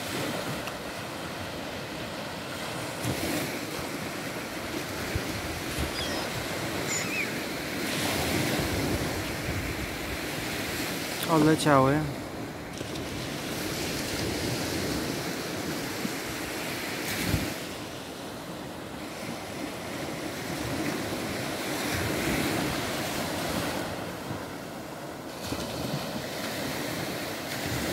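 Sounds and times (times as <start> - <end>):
small waves breaking on beach: 0.0 - 27.9
wind buffeting microphone: 2.8 - 11.0.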